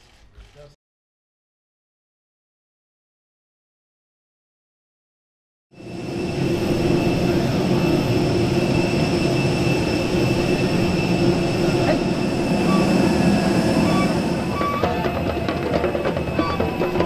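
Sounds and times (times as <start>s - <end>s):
high-pitched jet whine: 5.7s - 17.0s
jet engine roar: 5.8s - 17.0s.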